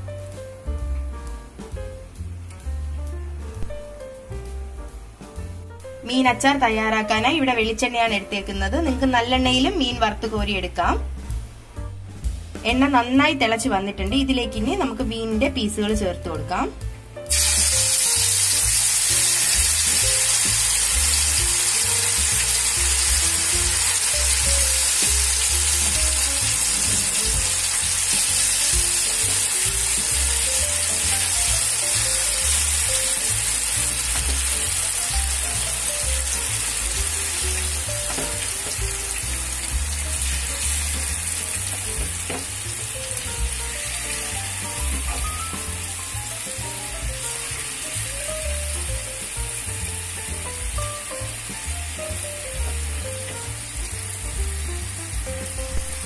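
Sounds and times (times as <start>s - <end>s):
fish deep-frying in oil: 17.3s - 56.0s.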